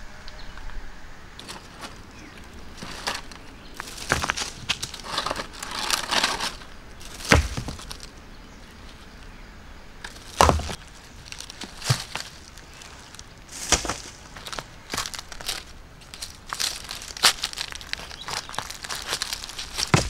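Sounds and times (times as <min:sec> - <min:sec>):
hands rustling dry leaves: 0:01.4 - 0:09.4, 0:10.0 - 0:20.0
dull thumps: 0:07.0 - 0:08.1, 0:10.0 - 0:12.5, 0:13.5 - 0:15.0, 0:17.5 - 0:20.0.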